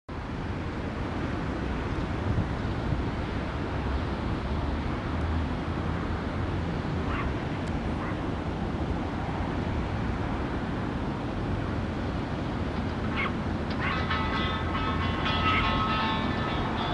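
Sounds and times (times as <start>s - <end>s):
surf: 0.1s - 16.9s
wind on microphone: 0.4s - 5.3s
faint animal calls: 13.1s - 14.1s.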